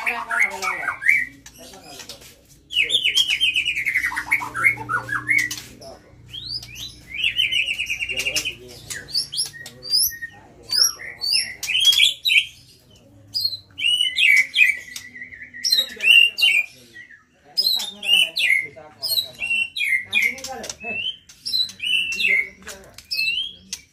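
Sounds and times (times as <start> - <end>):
songbird whistles and trills: 13.4 - 18.6.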